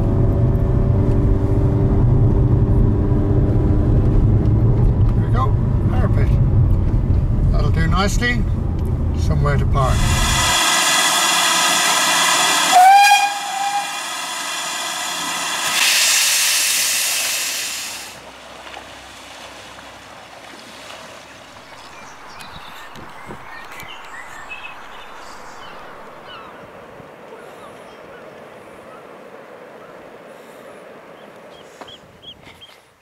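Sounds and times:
steam locomotive whistle: 9.9 - 18.0
steam hissing: 9.9 - 18.2.

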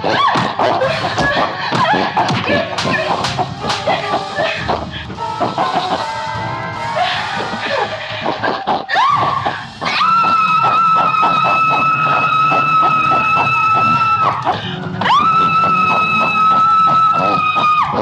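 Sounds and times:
fast rhythmic music: 0.0 - 18.0
woman screaming: 8.9 - 18.0.

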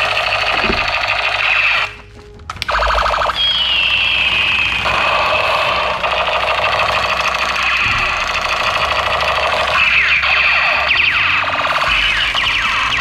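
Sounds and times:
toy gun siren-like warble: 2.7 - 13.0.

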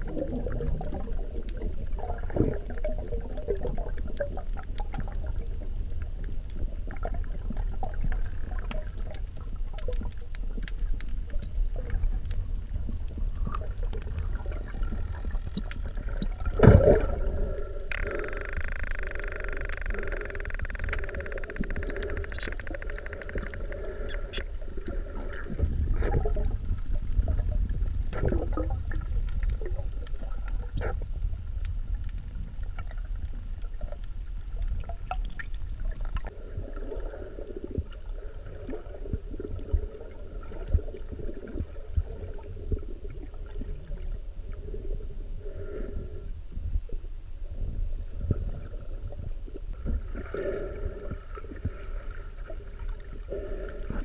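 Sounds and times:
sharp clicks and gurgles: 0.0 - 37.0
underwater rumble of moving water: 0.0 - 54.0.

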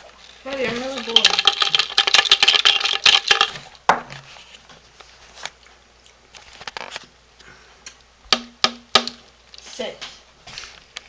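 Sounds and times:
jar rattling clicks and knocks: 0.5 - 3.7.

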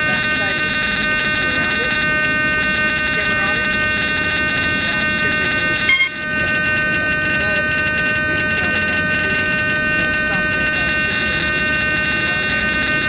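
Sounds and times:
faint voices: 0.0 - 6.6, 7.2 - 13.0
loud high-pitched buzz: 0.0 - 13.0
short beep: 5.9 - 6.2.

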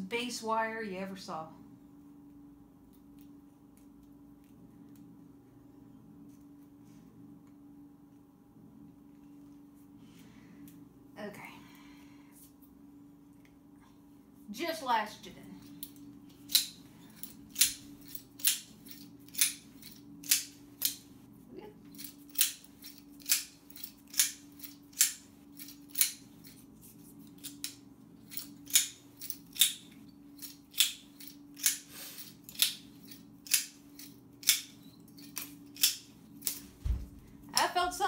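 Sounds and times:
faint steady hum: 0.0 - 38.0
metallic pliers clicking: 22.0 - 26.2, 27.4 - 29.8, 30.4 - 31.8, 32.5 - 36.6.

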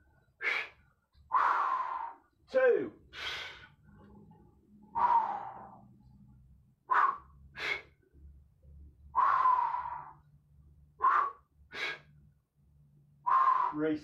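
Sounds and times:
man breathing hard: 0.4 - 2.3, 3.1 - 4.0, 4.8 - 5.8, 6.9 - 8.0, 9.1 - 10.3, 11.0 - 12.2, 13.2 - 14.0.

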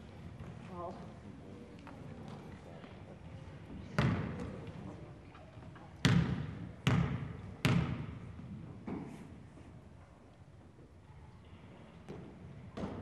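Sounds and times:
basketball bouncing on hardwood floor: 6.0 - 8.1.

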